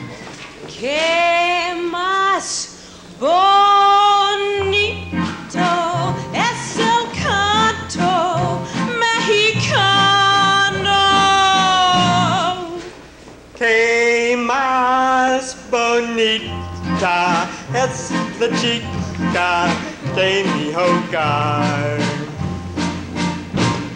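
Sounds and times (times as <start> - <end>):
instrumental accompaniment with bass: 4.6 - 12.4, 16.5 - 23.9.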